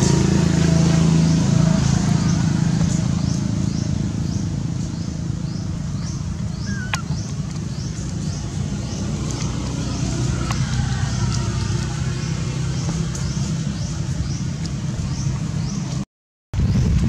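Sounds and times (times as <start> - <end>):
motor rumbling: 0.0 - 16.0
high falling chirp: 3.3 - 7.3.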